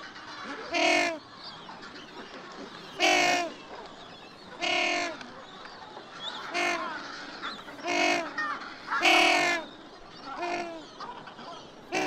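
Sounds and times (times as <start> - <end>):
penguins calling: 3.0 - 3.6, 6.4 - 7.1, 7.8 - 9.7, 10.3 - 11.1.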